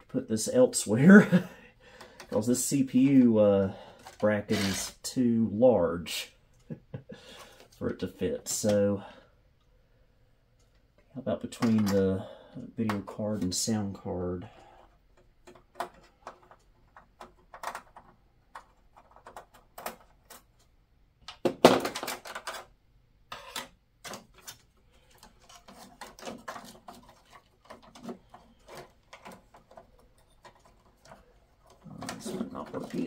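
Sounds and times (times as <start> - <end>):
computer parts clicking and rattling: 2.0 - 4.9, 14.5 - 20.7, 21.3 - 33.0.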